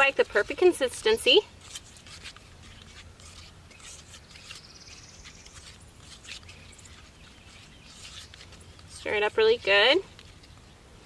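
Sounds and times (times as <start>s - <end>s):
stick scraping plaster in metal bowl: 0.0s - 10.7s
bird trilling: 3.3s - 9.1s.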